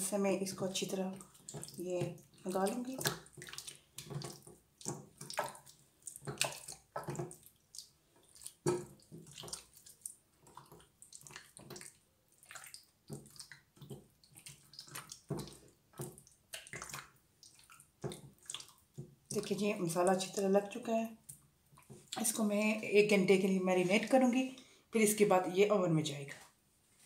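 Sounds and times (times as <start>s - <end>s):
hands squelching marinade into meat: 0.0s - 20.5s.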